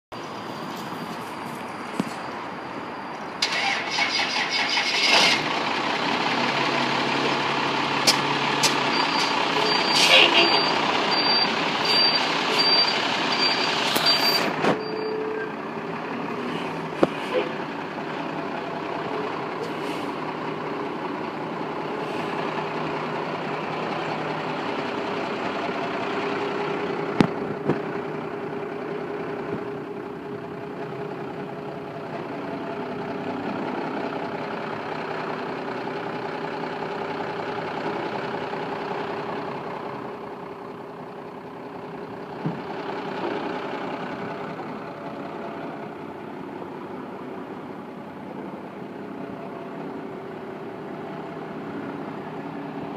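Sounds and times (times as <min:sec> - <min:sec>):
tractor engine idling: 0:16.9 - 0:52.9.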